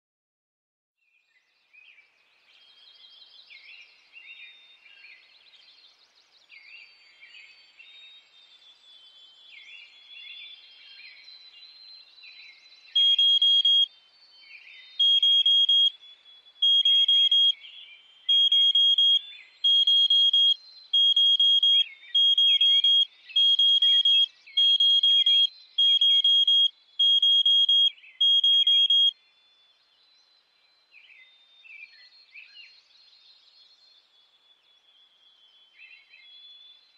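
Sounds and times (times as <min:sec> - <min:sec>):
birds chirping: 0:09.4 - 0:29.4
smoke alarm beeping: 0:13.0 - 0:13.9, 0:15.0 - 0:15.9, 0:16.6 - 0:17.5, 0:18.3 - 0:29.1.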